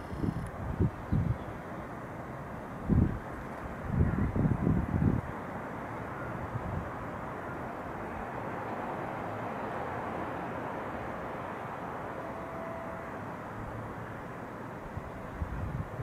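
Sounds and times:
distant city hum: 0.0 - 16.0
faint brief tone: 12.2 - 13.1.

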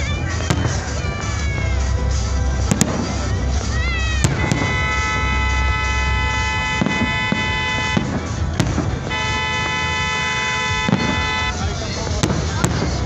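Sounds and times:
fireworks bangs: 0.2 - 13.0
horn blasts: 4.1 - 11.8.

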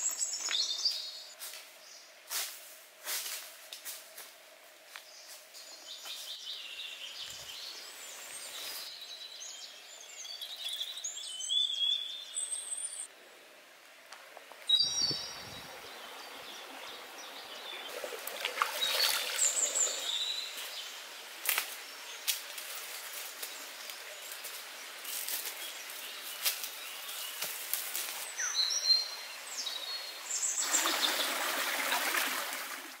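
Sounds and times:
birds chirping: 0.0 - 2.1, 5.0 - 13.1, 14.7 - 32.0
stream water over rocks: 15.2 - 20.8, 28.3 - 33.0.

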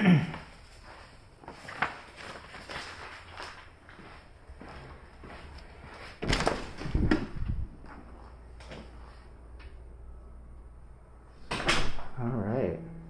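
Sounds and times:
door opening with latch clatter: 6.2 - 7.4, 11.5 - 12.2.

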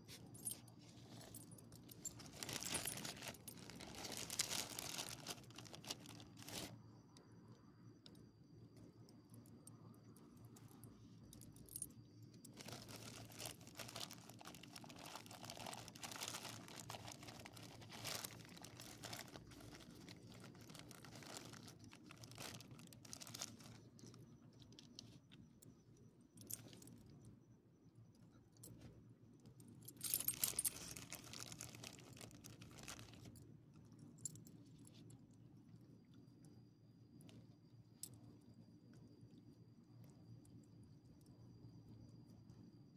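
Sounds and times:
plastic pouch crinkling: 1.1 - 6.7, 12.5 - 24.1, 30.0 - 33.3.

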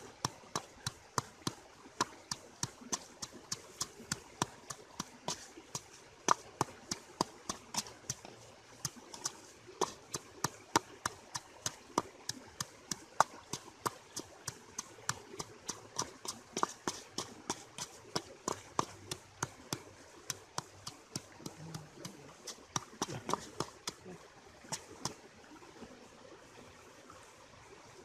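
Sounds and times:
stone pestle pounding in mortar: 8.8 - 24.0.

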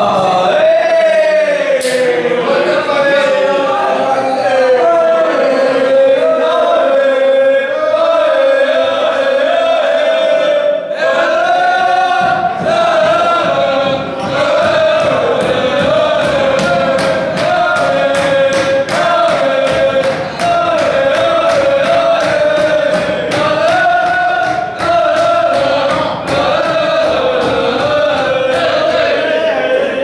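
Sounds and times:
men singing a chant: 0.0 - 30.0
rhythmic clapping: 0.0 - 30.0.

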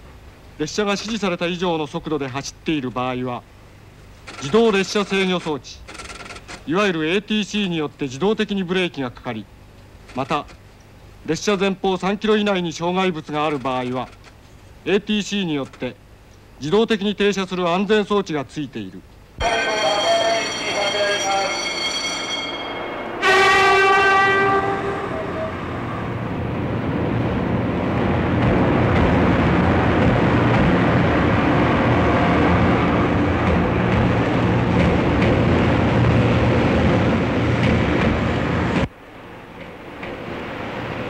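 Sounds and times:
train rumbling: 12.0 - 14.4, 19.4 - 41.0
train horn blast: 23.0 - 26.4.

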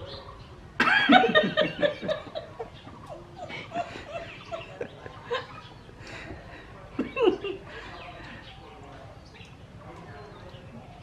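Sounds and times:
woman and man laughing: 0.8 - 6.3.

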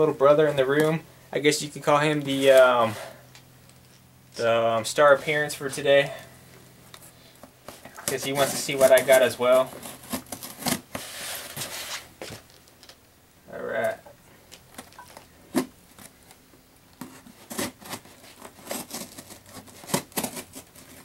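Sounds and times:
blade scraping cardboard box: 8.2 - 12.1, 17.0 - 21.0
knife slitting packing tape: 9.8 - 12.0, 17.0 - 21.0.

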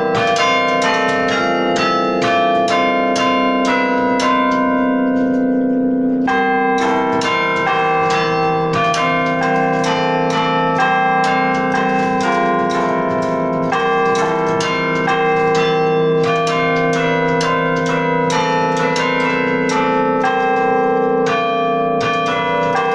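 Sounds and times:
carillon bells ringing a tune: 0.0 - 22.9.

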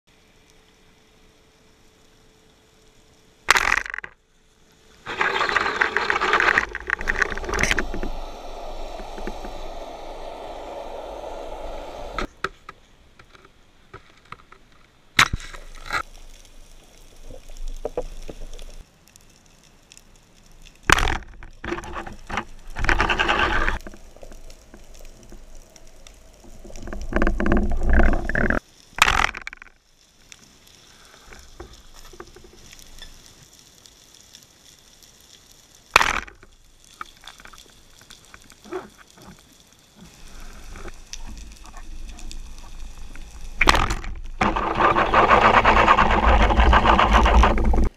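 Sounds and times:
sharp underwater cracks: 3.4 - 4.2, 5.0 - 12.3, 15.2 - 29.8, 35.2 - 47.9
rushing bubbling water underwater: 6.7 - 12.3.

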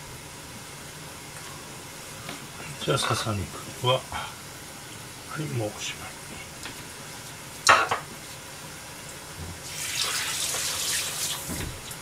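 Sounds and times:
kitchen tap running: 9.5 - 12.0.

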